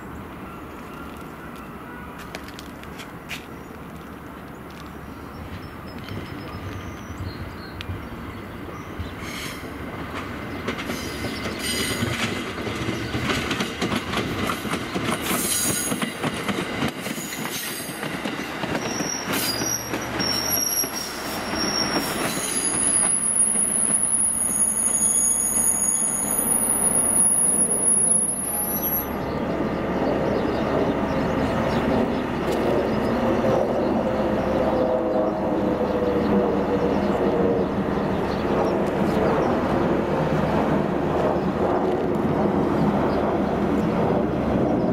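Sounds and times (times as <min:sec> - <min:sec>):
high-pitched wheel squeal: 0:18.9 - 0:29.1.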